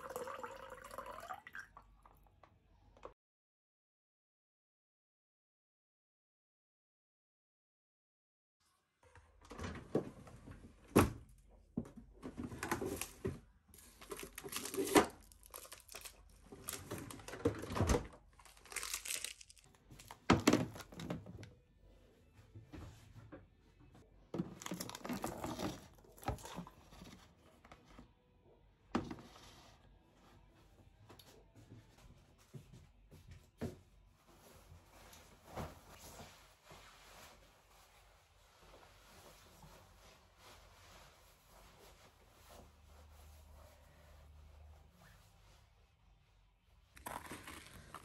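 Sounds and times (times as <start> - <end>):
rustling and crinkling: 11.7 - 21.5, 22.3 - 28.2, 29.2 - 46.0, 46.8 - 48.0.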